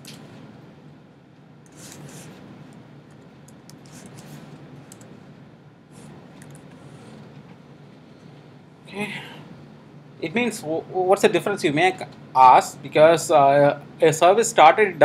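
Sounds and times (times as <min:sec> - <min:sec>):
faint low hum: 0:00.0 - 0:15.0.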